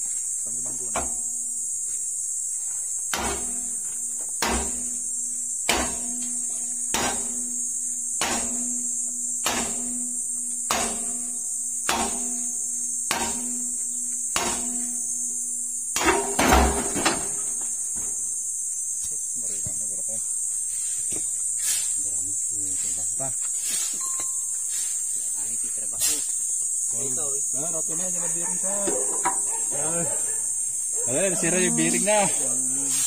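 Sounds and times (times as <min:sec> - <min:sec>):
high insect drone: 0:00.0 - 0:33.0
hammer striking steel bar: 0:03.1 - 0:03.6, 0:04.4 - 0:05.0, 0:05.6 - 0:07.6, 0:08.2 - 0:12.5, 0:13.1 - 0:15.0, 0:16.0 - 0:16.8.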